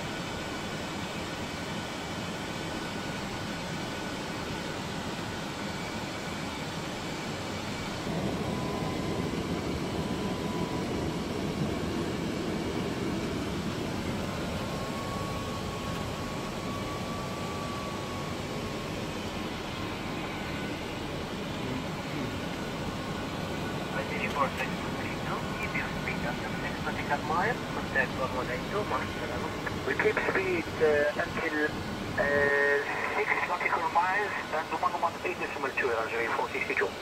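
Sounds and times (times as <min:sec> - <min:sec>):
airplane cockpit rushing noise: 0:23.5 - 0:31.8, 0:32.4 - 0:36.9.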